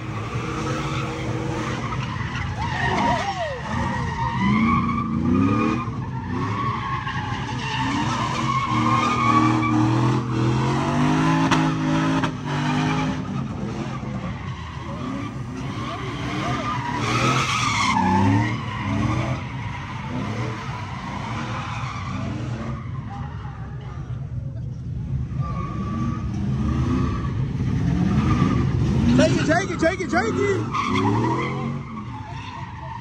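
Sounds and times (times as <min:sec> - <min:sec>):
truck engines revving: 0:00.0 - 0:33.0
tyres screeching on pavement: 0:00.0 - 0:33.0.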